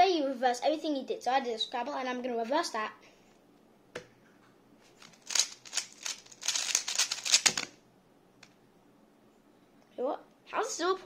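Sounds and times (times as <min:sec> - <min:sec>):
puzzle cube plastic clicks: 0:05.0 - 0:07.8.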